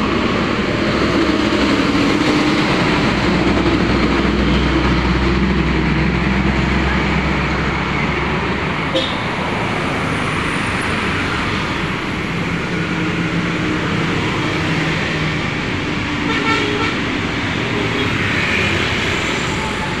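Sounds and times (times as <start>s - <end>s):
bus engine drone: 0.0s - 20.0s
traffic passing: 0.0s - 20.0s
vehicle horn: 8.9s - 9.2s, 16.2s - 17.0s.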